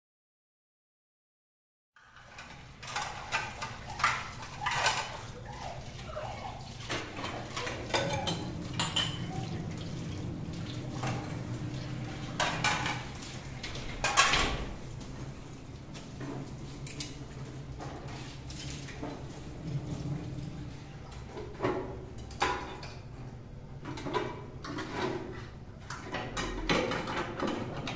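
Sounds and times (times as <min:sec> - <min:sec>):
dishes and utensils clinking: 0:02.1 - 0:14.8, 0:15.9 - 0:27.9
running water: 0:02.2 - 0:21.9
low steady hum: 0:02.4 - 0:24.0.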